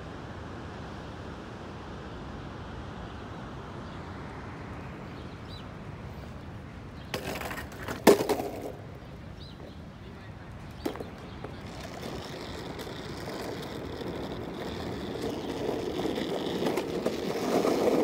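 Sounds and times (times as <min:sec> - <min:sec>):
longboard clacking on asphalt: 0:07.0 - 0:09.8, 0:10.5 - 0:18.0.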